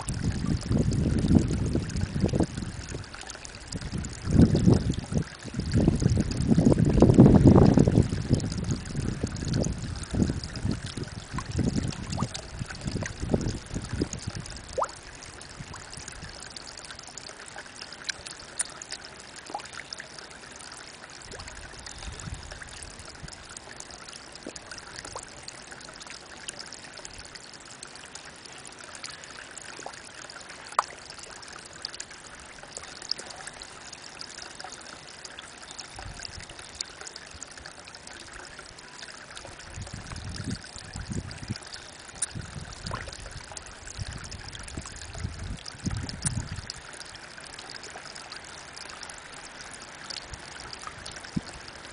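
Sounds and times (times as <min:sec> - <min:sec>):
wind gusts on microphone: 0:00.0 - 0:03.1, 0:03.7 - 0:14.8, 0:39.7 - 0:41.6, 0:42.3 - 0:46.7
small water drips: 0:00.0 - 0:51.9
water trickling into a pond: 0:00.0 - 0:51.9.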